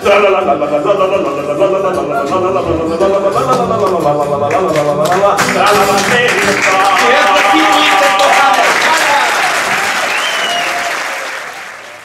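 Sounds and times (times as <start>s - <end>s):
strummed acoustic guitar: 0.0s - 7.0s
man singing: 0.0s - 8.8s.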